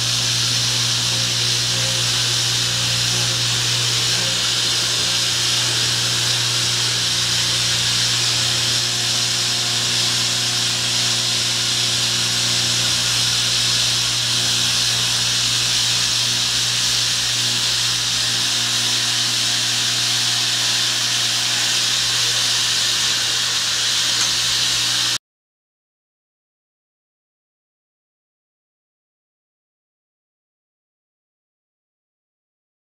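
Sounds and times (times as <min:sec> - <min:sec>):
steam hissing from locomotive: 0:00.0 - 0:25.2.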